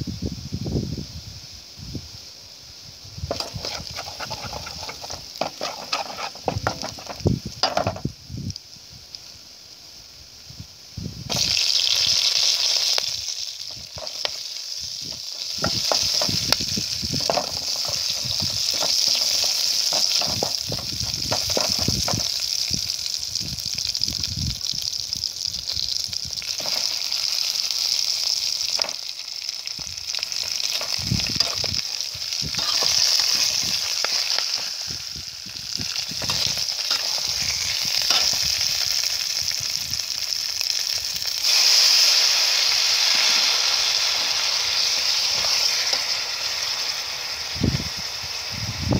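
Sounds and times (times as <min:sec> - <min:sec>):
food sizzling in hot oil: 0:00.0 - 0:48.9
metal ladle scraping a pot: 0:03.3 - 0:07.2, 0:32.6 - 0:33.1.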